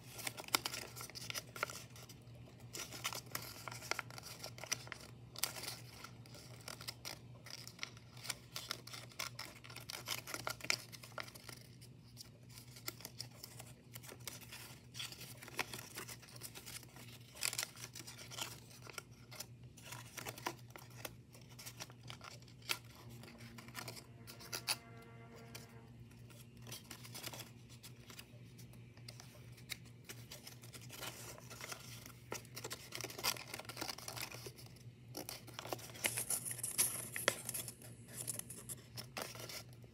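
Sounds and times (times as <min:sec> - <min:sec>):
paper rustling and crinkling: 0:00.0 - 0:39.9.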